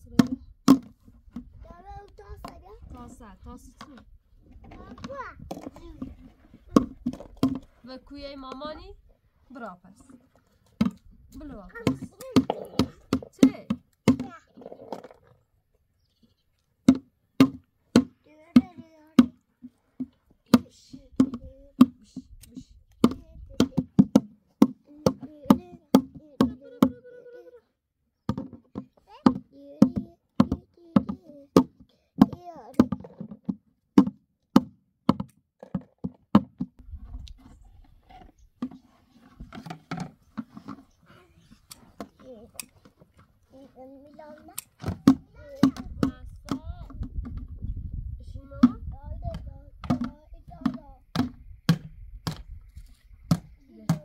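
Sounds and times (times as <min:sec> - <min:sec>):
stick striking plastic basin: 0:00.0 - 0:01.5, 0:06.7 - 0:07.7, 0:10.8 - 0:15.2, 0:16.8 - 0:19.4, 0:20.0 - 0:27.0, 0:28.3 - 0:36.8, 0:44.7 - 0:47.6, 0:48.6 - 0:52.6, 0:53.2 - 0:54.0
small child's voice: 0:01.5 - 0:03.1, 0:04.6 - 0:06.8, 0:14.1 - 0:15.2, 0:18.2 - 0:19.3, 0:20.5 - 0:24.0, 0:24.8 - 0:27.8, 0:28.8 - 0:33.1, 0:41.0 - 0:42.7, 0:43.5 - 0:47.0, 0:48.2 - 0:51.2, 0:53.5 - 0:54.0
plastic bucket and lid clattering: 0:03.8 - 0:07.9, 0:10.0 - 0:15.4, 0:28.3 - 0:34.1, 0:37.4 - 0:41.2
knocks on plastic: 0:10.8 - 0:14.3, 0:16.9 - 0:19.4, 0:23.0 - 0:27.0, 0:28.3 - 0:36.8, 0:44.8 - 0:47.6, 0:48.6 - 0:52.5.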